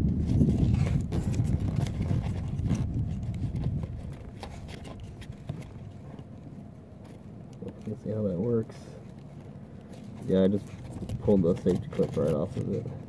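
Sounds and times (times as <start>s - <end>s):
plastic connector clicks and scrapes: 0.2s - 6.3s, 7.0s - 13.0s
hands rubbing on microphone: 7.6s - 13.0s.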